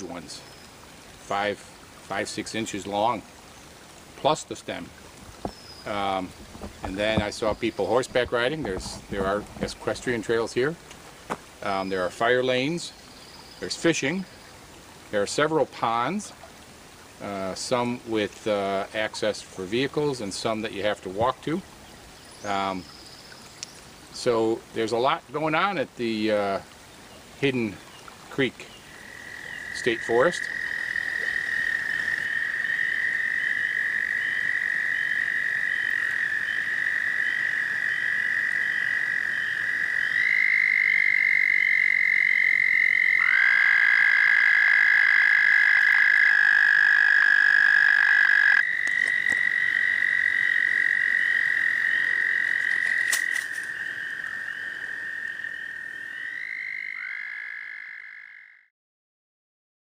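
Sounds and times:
frogs trilling: 0.0 - 10.8, 28.4 - 58.7.

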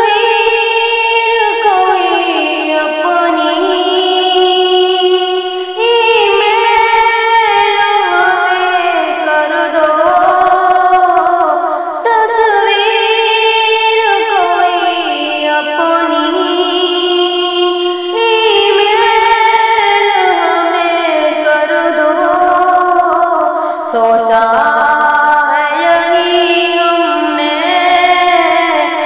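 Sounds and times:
woman singing: 0.0 - 29.0
musical accompaniment: 10.0 - 12.1.

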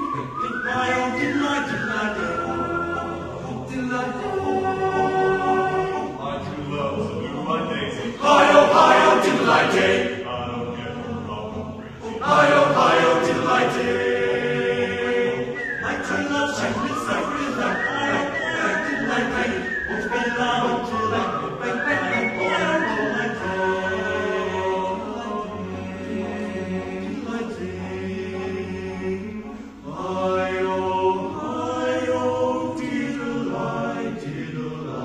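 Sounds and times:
choir singing: 0.0 - 35.0.

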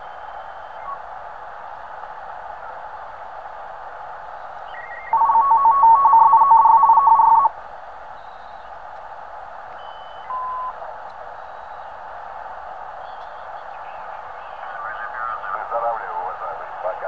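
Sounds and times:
radio receiver hiss: 13.2 - 17.0.

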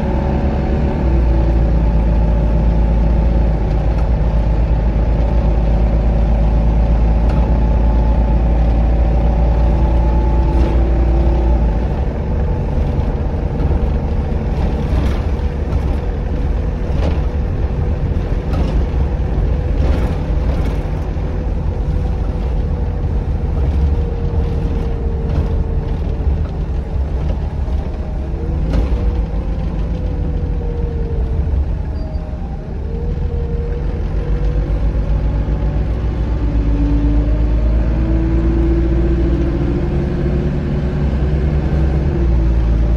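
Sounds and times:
bus engine low rumble: 0.0 - 42.9
rattles: 10.4 - 31.9.

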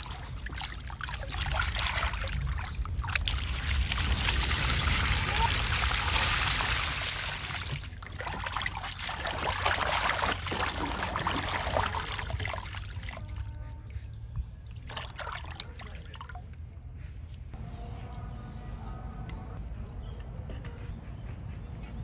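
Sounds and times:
water splashing in plastic basin: 0.0 - 13.4, 14.9 - 16.4
water dripping: 0.0 - 13.5.

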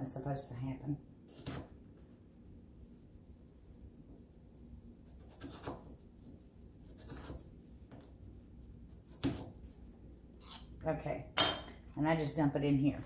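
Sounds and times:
knife cutting potato on board: 1.3 - 1.8, 5.0 - 6.0, 6.8 - 8.1, 8.9 - 9.8.

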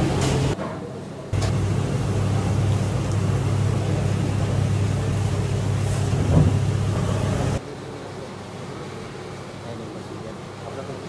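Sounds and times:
kitchen machinery humming: 0.0 - 0.6, 1.2 - 7.7.

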